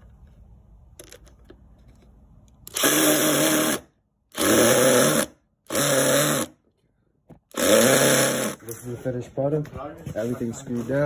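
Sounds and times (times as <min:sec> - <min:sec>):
cordless drill driving screws: 0:02.7 - 0:06.6, 0:07.5 - 0:08.6.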